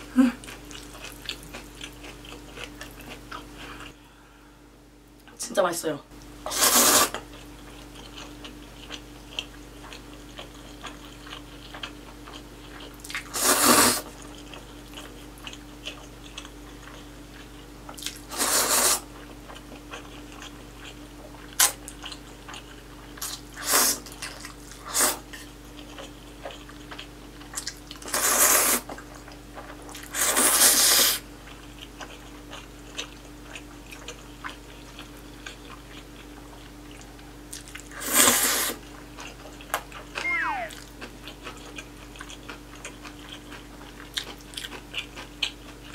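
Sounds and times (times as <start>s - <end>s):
soft chewing: 0.0s - 4.2s, 7.2s - 13.4s, 14.0s - 18.3s, 19.0s - 45.9s
loud noodle slurps: 6.5s - 7.2s, 13.4s - 14.0s, 18.3s - 19.0s, 30.2s - 31.2s, 38.0s - 38.8s.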